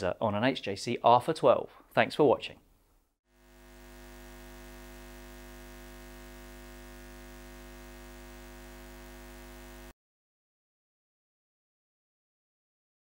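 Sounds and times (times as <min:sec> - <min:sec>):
low electronic hum: 0:03.4 - 0:09.9.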